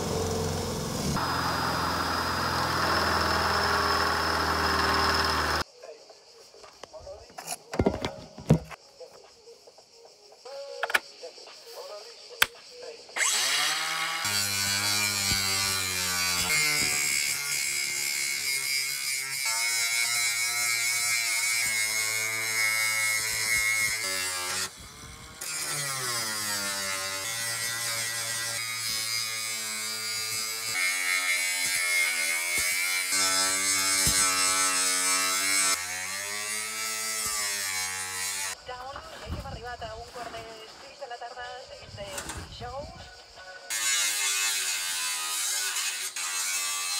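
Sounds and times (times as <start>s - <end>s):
angle grinder cutting steel: 0.0s - 5.6s, 13.2s - 38.6s, 43.7s - 46.9s.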